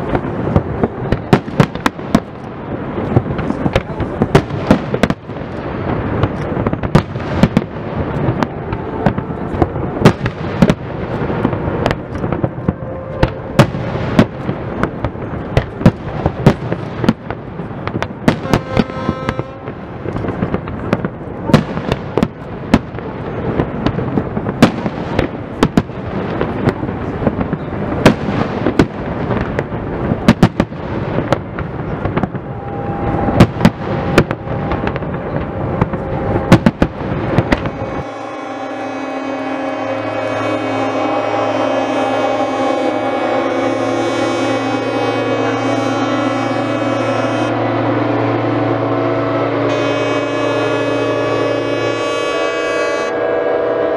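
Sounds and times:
rumble of explosions: 0.0 - 38.3.

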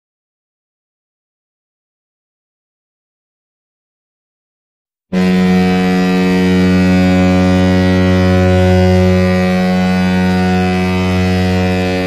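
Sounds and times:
goal horn blasting: 5.2 - 12.0.

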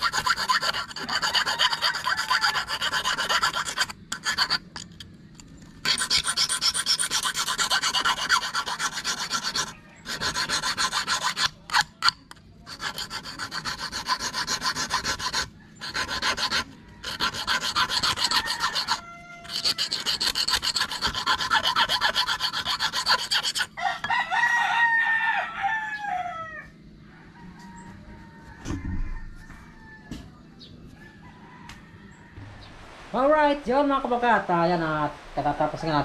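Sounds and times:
file rasping on metal hook: 0.0 - 5.0, 5.8 - 23.8
rooster crowing: 0.3 - 3.2, 15.5 - 20.2, 23.6 - 32.8.

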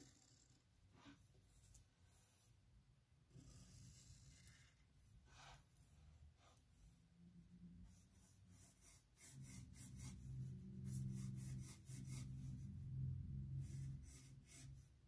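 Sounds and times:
low steady hum: 0.0 - 15.0
pencil shading on paper: 3.3 - 5.6, 7.8 - 12.7, 13.5 - 15.0.

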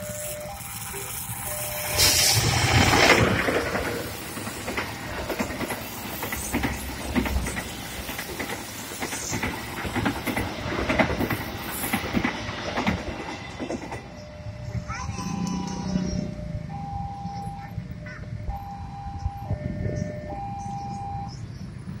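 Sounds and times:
train rushing noise: 0.0 - 22.0
train wheels clattering over rail joints: 2.0 - 14.3.

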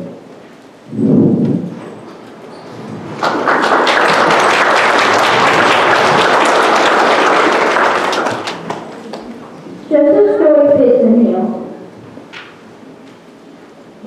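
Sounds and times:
audience applauding: 2.8 - 9.5.

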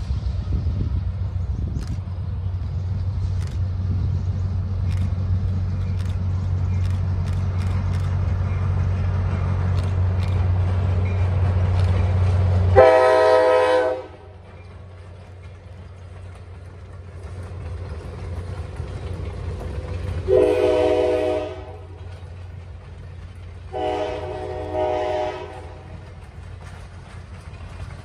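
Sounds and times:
train rumbling: 0.0 - 28.0
train air horn chord: 12.7 - 14.3, 20.3 - 22.0, 23.7 - 25.9.

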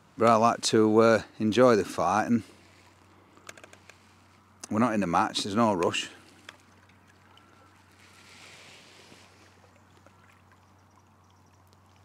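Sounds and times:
soft watery rush: 0.0 - 12.0
water lapping: 5.6 - 12.0.

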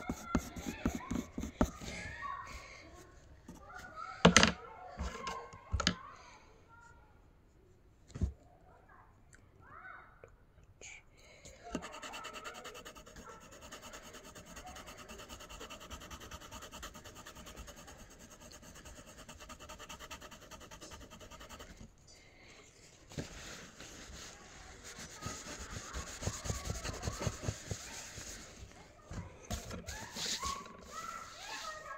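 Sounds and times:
fingertip rubbing paper: 0.0 - 1.8, 11.8 - 21.8, 23.3 - 28.7, 29.5 - 31.9
pencil scratching on paper: 0.0 - 1.9, 11.7 - 21.9, 24.1 - 28.7, 29.5 - 31.9.

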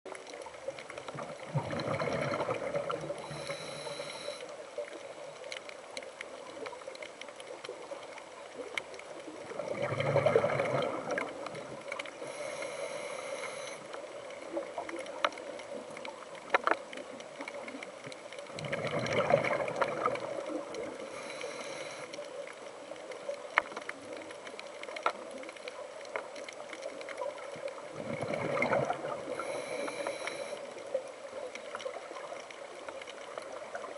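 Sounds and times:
exhaled bubbles gurgling: 0.1 - 33.9
regulator inhalation hiss: 3.2 - 4.5, 12.2 - 13.9, 21.0 - 22.1, 29.4 - 30.7.

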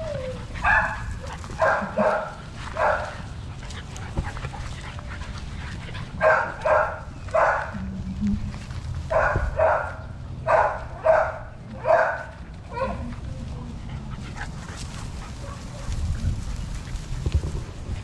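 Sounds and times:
puppy barking in high yips: 0.0 - 3.1, 6.2 - 7.7, 9.1 - 13.1.

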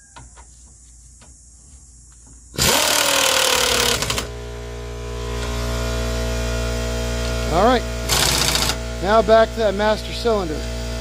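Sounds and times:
steady motor hum: 2.5 - 11.0
pneumatic wrench whining: 2.6 - 9.3.

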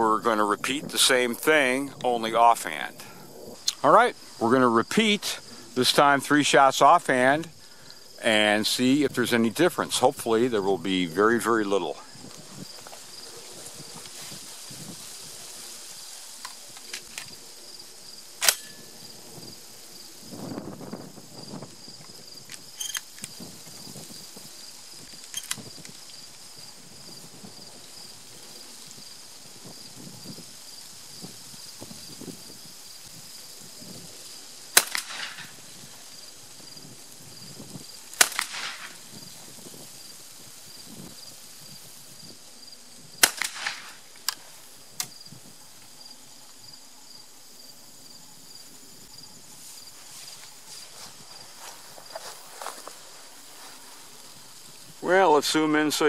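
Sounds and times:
insects chirping: 0.0 - 56.0
shotgun blast: 34.8 - 35.5, 38.2 - 39.0, 43.2 - 44.0
sharp clicks: 43.2 - 44.4.

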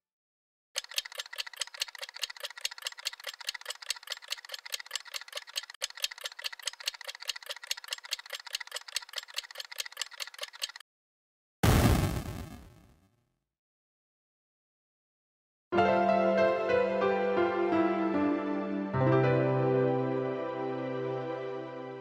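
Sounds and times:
fast even ticking: 0.8 - 10.8.

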